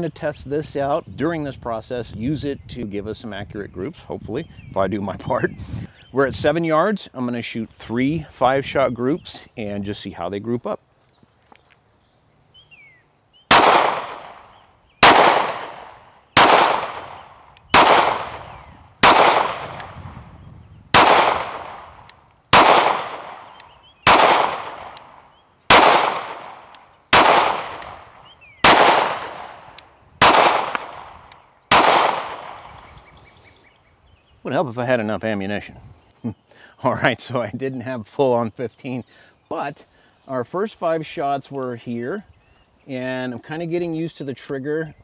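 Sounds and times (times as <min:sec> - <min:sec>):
pistol shots: 0:13.5 - 0:20.0, 0:20.9 - 0:32.8.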